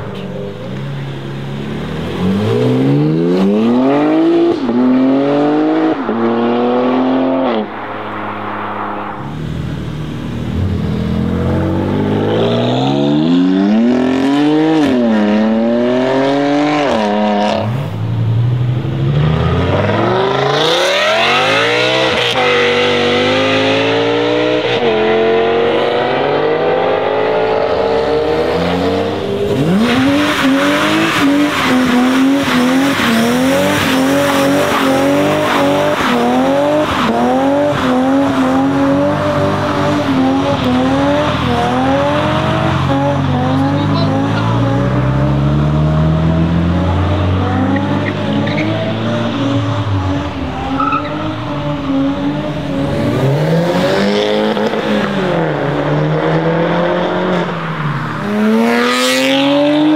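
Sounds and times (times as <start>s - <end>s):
car engines revving and accelerating: 0.0s - 59.9s
car engine revs bouncing: 27.7s - 59.9s.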